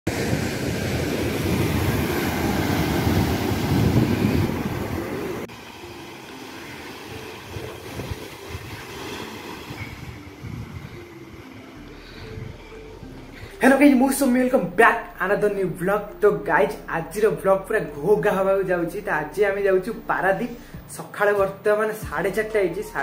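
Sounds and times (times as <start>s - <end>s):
wind rumble on microphone: 0.1s - 5.5s, 7.1s - 13.6s
waves washing onto rocky shore: 0.1s - 10.4s.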